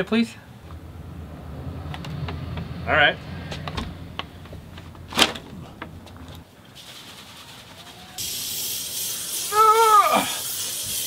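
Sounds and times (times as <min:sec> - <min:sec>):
aerosol spray hissing: 0:08.0 - 0:11.0
drawn-out vocal cry: 0:09.4 - 0:10.4.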